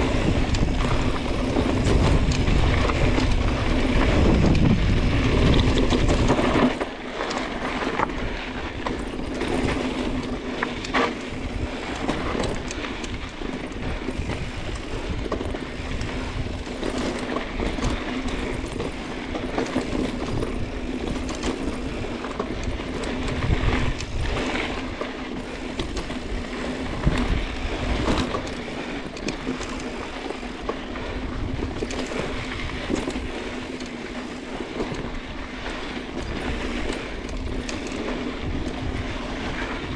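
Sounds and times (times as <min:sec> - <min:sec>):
wind on microphone: 0:00.0 - 0:06.8, 0:22.8 - 0:24.8, 0:25.4 - 0:29.0
bike clicking and rattling: 0:00.0 - 0:39.9
bike tyres on dirt and rock: 0:00.0 - 0:39.9.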